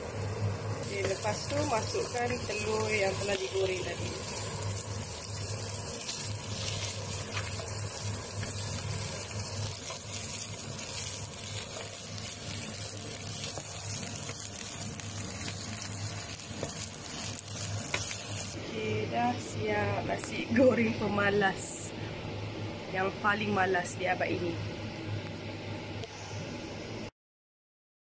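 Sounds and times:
rice sizzling in a pan: 0.0 - 18.6
wooden spatula scraping: 6.0 - 18.6.

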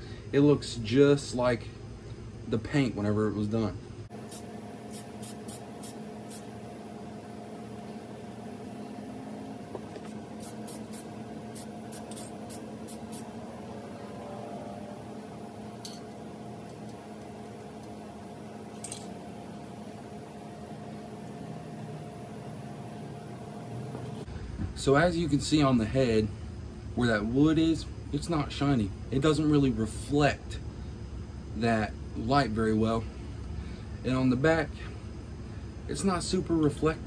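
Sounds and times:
steady background hum: 0.0 - 37.0
aerosol spray puffs: 4.2 - 6.6, 10.0 - 13.4.

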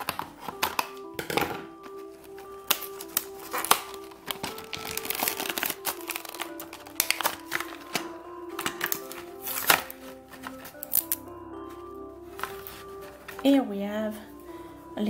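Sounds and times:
cardboard and plastic tearing: 0.0 - 11.2
light background music: 0.0 - 15.0.

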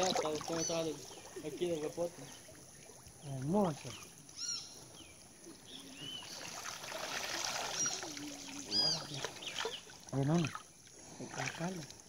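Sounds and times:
high arched calls: 0.0 - 1.6, 3.9 - 10.0
net dripping water: 0.0 - 12.0
water trickling and splashing: 0.0 - 12.0.

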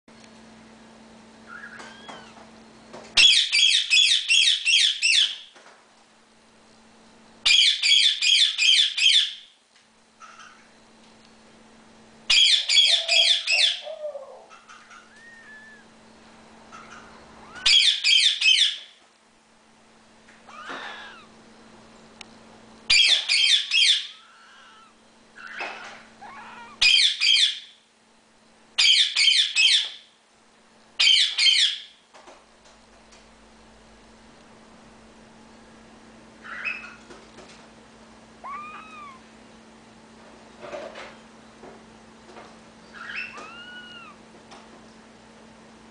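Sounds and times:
parakeet screeching: 1.5 - 2.4, 12.3 - 13.8, 14.5 - 15.9, 16.7 - 18.8, 20.5 - 21.3, 22.9 - 27.6, 36.4 - 37.0, 38.4 - 39.2, 42.9 - 44.2.

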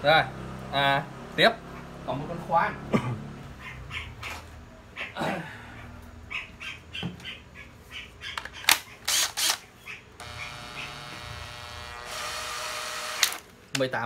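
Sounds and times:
drill handling clicks and rustles: 8.4 - 9.6, 10.2 - 13.9
cordless drill motor whine: 9.1 - 9.6, 10.2 - 13.5.

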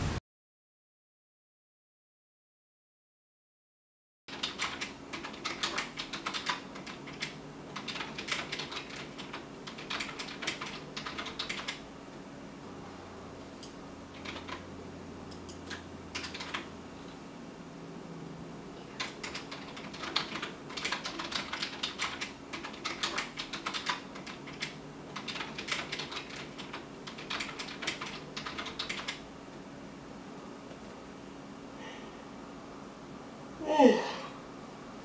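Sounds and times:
typing on computer keyboard: 4.3 - 11.8, 14.1 - 14.7, 15.3 - 16.7, 19.0 - 29.2
faint steady hum: 4.3 - 35.0.

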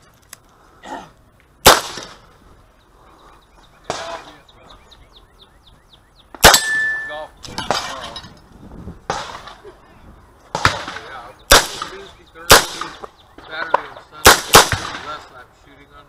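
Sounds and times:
revolver shots: 10.5 - 13.0.

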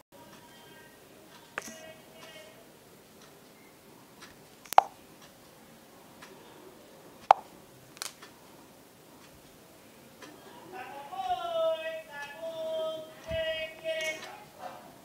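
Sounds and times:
low room hiss: 0.2 - 15.0
tapping smartphone touchscreen: 4.7 - 5.0, 7.2 - 7.5.

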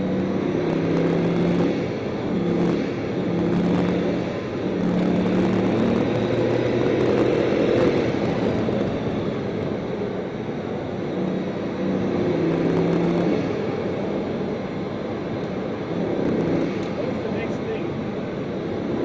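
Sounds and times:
car engine running: 0.0 - 19.0
road and wind rumble: 0.0 - 19.0.

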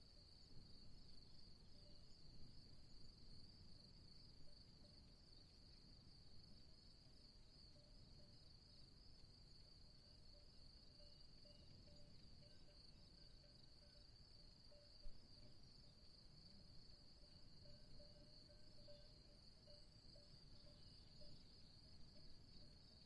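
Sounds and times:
insect chorus chirring: 0.2 - 23.0.

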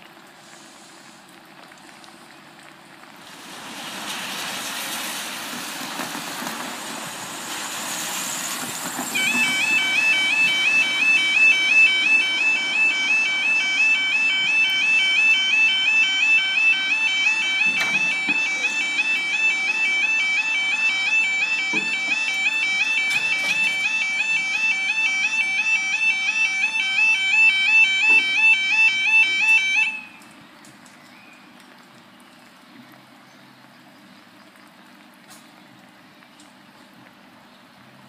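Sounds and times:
level crossing warbling alarm: 9.1 - 30.2.

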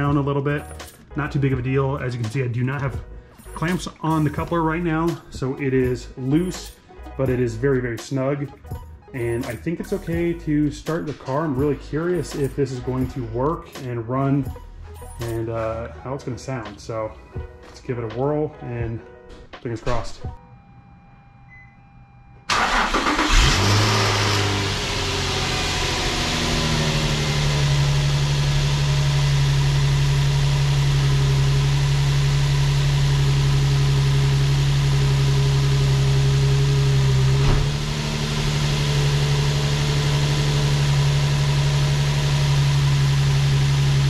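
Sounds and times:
car starter cranking: 22.5 - 25.8
car engine idling: 22.5 - 44.0.

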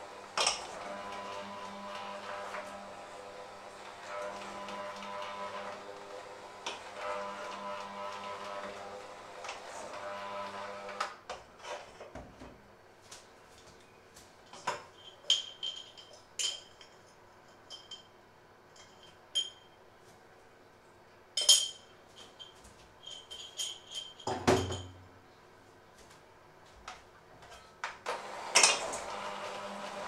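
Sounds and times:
electric hand mixer running: 0.0 - 11.1, 28.1 - 30.0
metallic clinks of utensils: 15.0 - 18.1, 18.8 - 19.8, 21.4 - 25.0.

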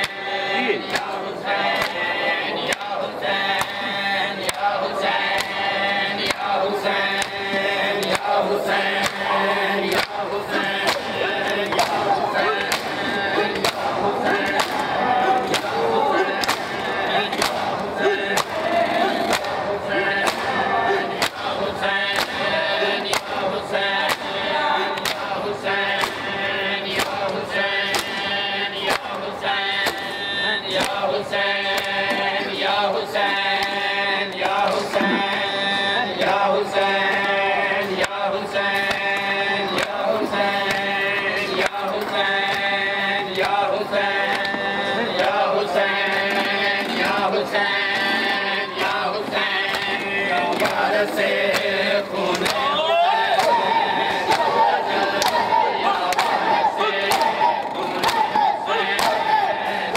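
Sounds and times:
men chanting in unison: 0.0 - 59.9
hands slapping chests: 2.7 - 3.8, 4.4 - 5.6, 7.2 - 9.3, 9.9 - 21.5, 22.1 - 23.4, 24.0 - 24.4, 25.0 - 26.3, 26.9 - 28.3, 28.9 - 29.2, 30.8 - 31.0, 38.0 - 41.0, 49.6 - 52.7, 53.3 - 57.4, 58.0 - 59.4.

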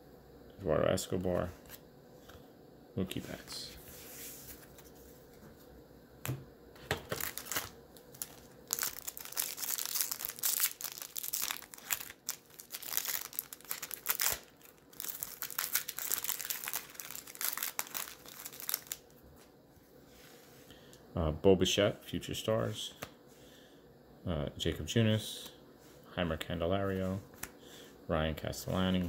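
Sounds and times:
plastic wrapper crinkling and tearing: 7.0 - 19.2.

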